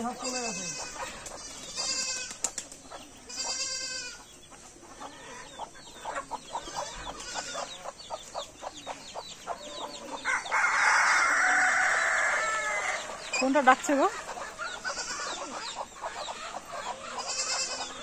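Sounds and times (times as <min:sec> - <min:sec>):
hens clucking: 0:00.0 - 0:18.0
goat bleats: 0:00.1 - 0:02.4, 0:03.3 - 0:04.3, 0:06.9 - 0:07.7, 0:14.8 - 0:15.5, 0:17.2 - 0:18.0.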